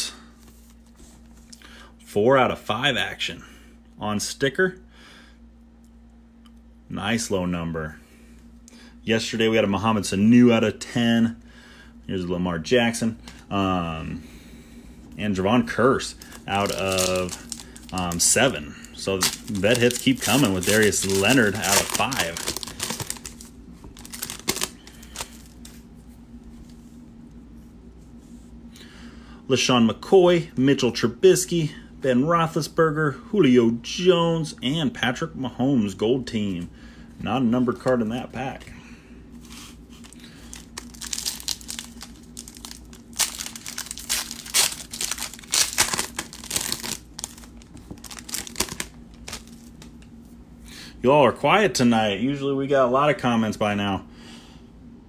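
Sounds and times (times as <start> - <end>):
faint steady hum: 0.0 - 55.0
foil card pack crinkling: 15.6 - 25.8, 39.4 - 50.0.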